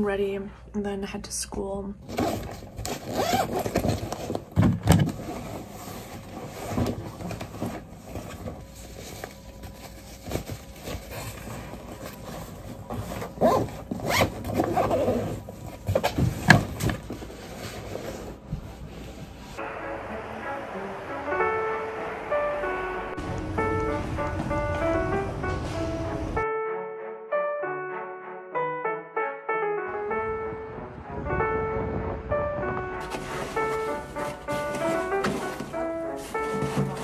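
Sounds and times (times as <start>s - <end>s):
zipper pulls: 2.0s - 4.3s, 13.2s - 15.4s
items being handled: 2.0s - 19.6s, 33.0s - 37.0s
fabric rustling: 33.0s - 37.0s.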